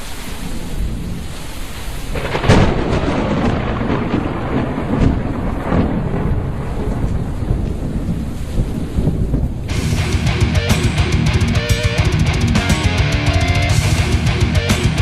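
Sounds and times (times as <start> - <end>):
rain-like hiss: 0.0 - 10.1
rolling thunder: 0.3 - 10.6
thunderclap: 2.1 - 10.6.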